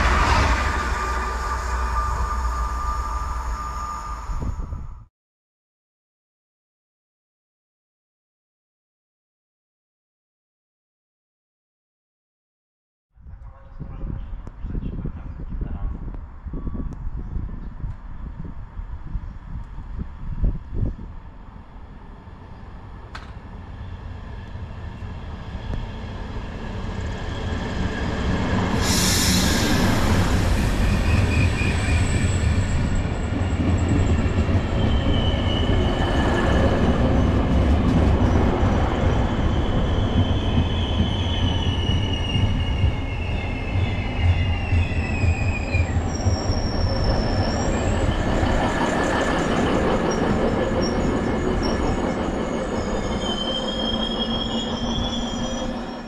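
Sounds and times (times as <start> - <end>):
train rumbling past: 0.0 - 5.1, 13.4 - 56.0
wheels squealing on rails: 0.0 - 5.1, 23.7 - 56.0
hiss-like burst: 28.7 - 31.4.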